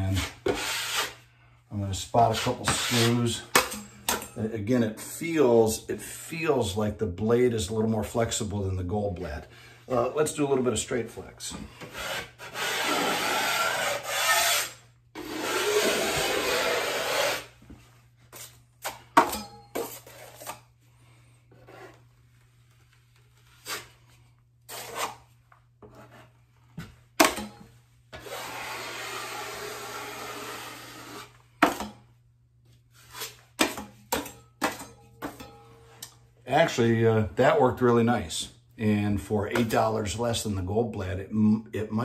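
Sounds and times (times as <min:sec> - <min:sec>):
drywall knife scraping compound: 0:00.0 - 0:01.3, 0:01.9 - 0:05.2, 0:11.5 - 0:20.7, 0:21.4 - 0:32.0, 0:32.9 - 0:36.1.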